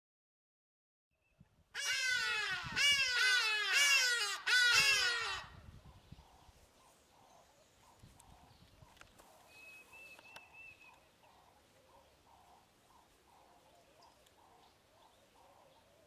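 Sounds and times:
ibises giving harsh calls: 1.8s - 5.6s.

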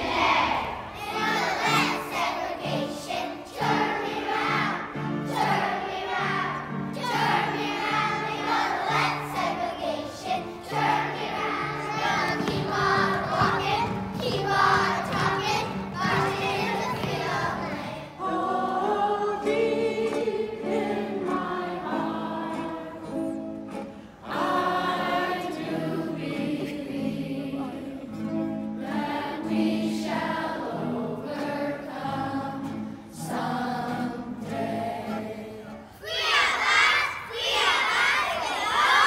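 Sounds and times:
children shouting and cheering: 0.0s - 4.8s, 5.4s - 18.0s, 36.0s - 39.0s
children's choir singing: 0.0s - 39.0s.

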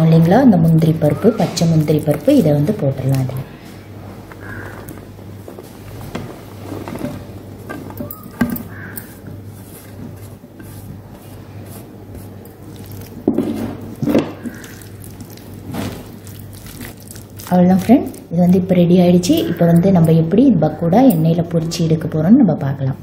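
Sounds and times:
steady low hum: 0.0s - 23.0s
wet squelching of batter: 10.8s - 18.3s.

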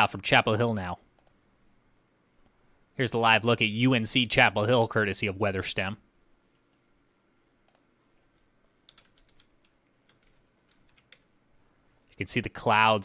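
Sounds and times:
soft clicks: 1.1s - 1.4s, 7.6s - 11.3s.

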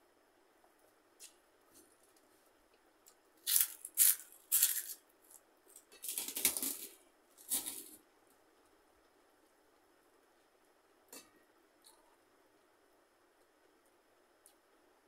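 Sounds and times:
crisp crunching while chewing: 3.4s - 8.0s.

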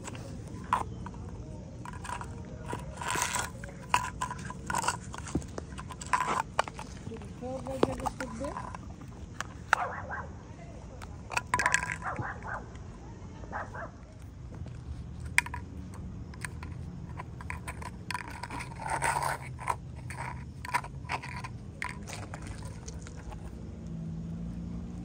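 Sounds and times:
cup scraping on asphalt: 0.0s - 9.8s, 11.0s - 12.6s, 14.2s - 23.9s
puppy chewing a cup: 0.0s - 9.8s, 14.2s - 23.7s.

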